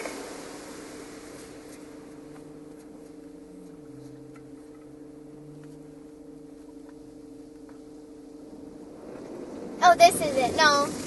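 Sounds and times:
car wash machinery humming: 0:00.0 - 0:11.0
low wavering tone: 0:00.0 - 0:11.0
faint ticks: 0:01.4 - 0:08.2.

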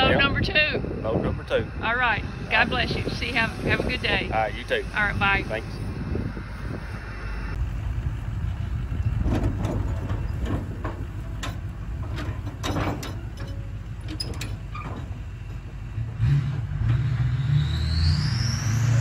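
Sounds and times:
trailer clanking and rattling: 0:00.0 - 0:17.8
pickup truck engine running: 0:07.6 - 0:16.9.

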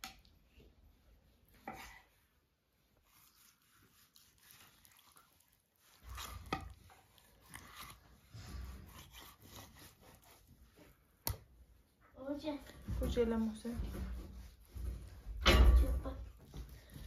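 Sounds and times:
knife slicing and scraping: 0:03.0 - 0:10.6.

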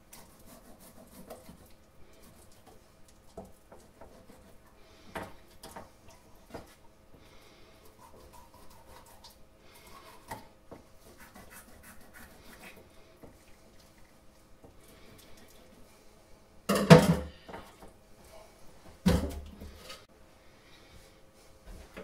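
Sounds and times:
knife scratching fish skin: 0:00.1 - 0:02.7, 0:03.7 - 0:04.7, 0:07.9 - 0:10.4, 0:11.0 - 0:12.8.

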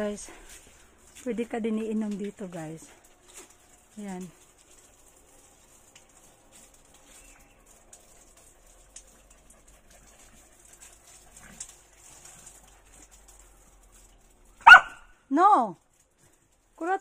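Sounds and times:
dog making faint noises: 0:08.0 - 0:13.7.

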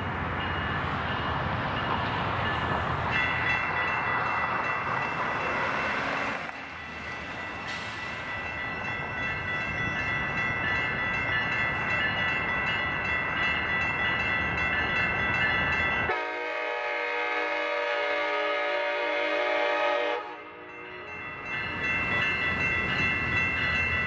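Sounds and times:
train rumble: 0:00.0 - 0:24.0
train horn chord: 0:16.1 - 0:21.1.

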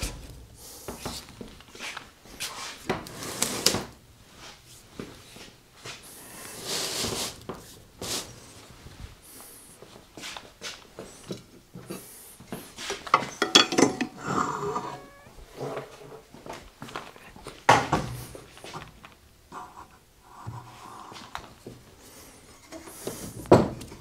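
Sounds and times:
heavy metal parts knocking: 0:13.2 - 0:15.2
metal parts scraping: 0:13.2 - 0:15.3.

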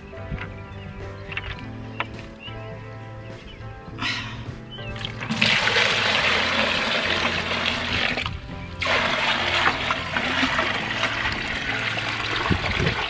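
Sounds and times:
water pouring into plastic bucket: 0:05.0 - 0:13.0.

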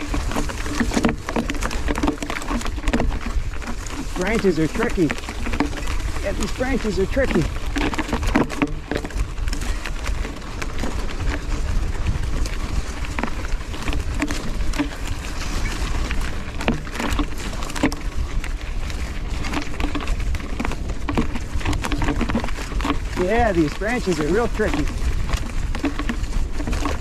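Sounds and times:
bike clicks and rattles: 0:00.0 - 0:27.0
branches scraping against bike: 0:00.0 - 0:27.0
wind rumble on microphone: 0:00.0 - 0:27.0.

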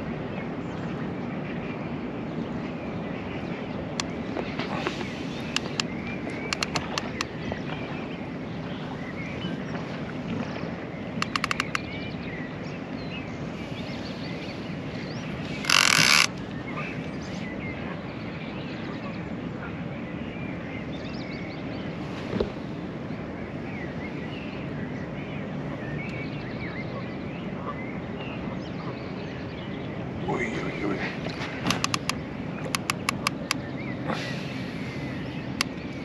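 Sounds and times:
fishing reel clicking: 0:15.6 - 0:16.3.

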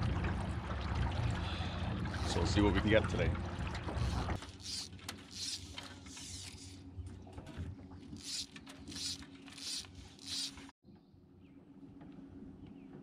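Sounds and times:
electric trolling motor hum: 0:01.8 - 0:07.0, 0:08.1 - 0:10.7
fly line rasping off reel: 0:04.0 - 0:06.8, 0:08.2 - 0:10.7.

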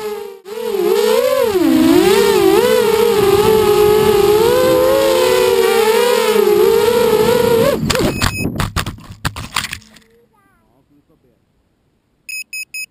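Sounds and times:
quadcopter motors whining: 0:00.0 - 0:08.4.

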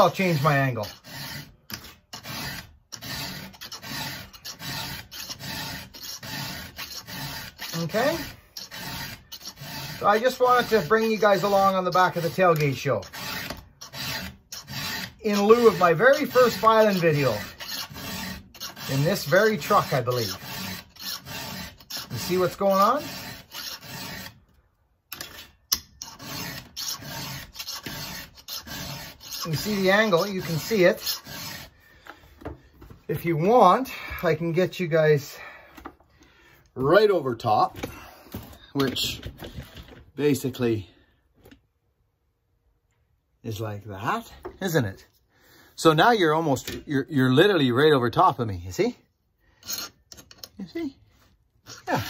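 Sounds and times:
file rasping on chainsaw chain: 0:00.0 - 0:24.4, 0:25.1 - 0:32.0, 0:49.5 - 0:50.8, 0:51.6 - 0:52.0.

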